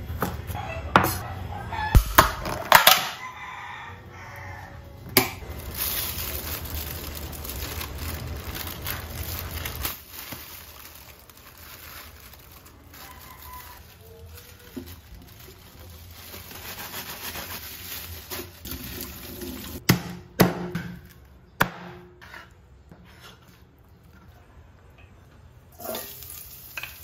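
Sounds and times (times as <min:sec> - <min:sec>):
rooster crowing: 0:00.5 - 0:02.2, 0:03.0 - 0:05.0, 0:12.9 - 0:14.7.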